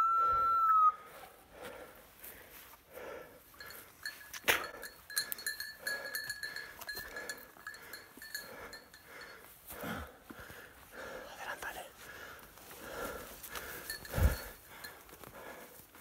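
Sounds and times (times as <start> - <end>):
dog bell ringing: 3.6 - 9.5, 13.8 - 14.7
rustling steps in undergrowth: 11.9 - 16.0.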